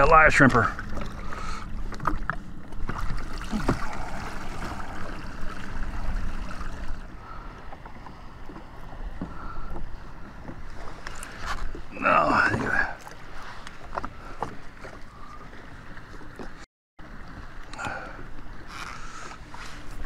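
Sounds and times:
water splashing and sloshing: 0.0s - 20.0s.

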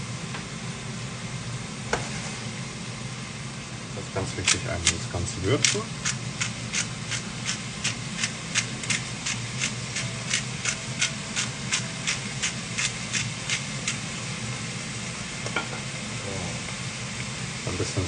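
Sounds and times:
steady low hum: 0.0s - 18.0s
spice grinder grinding: 4.3s - 15.5s.

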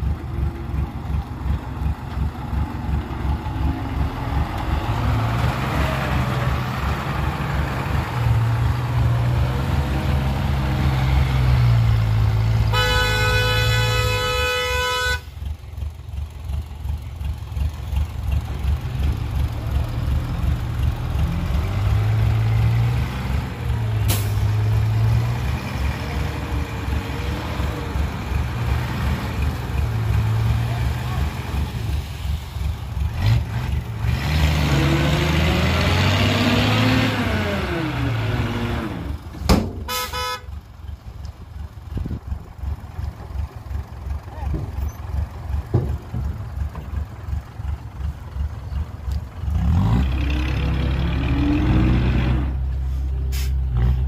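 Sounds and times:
diesel truck engine droning: 0.0s - 54.0s
truck horn: 12.6s - 15.4s, 39.8s - 40.7s.

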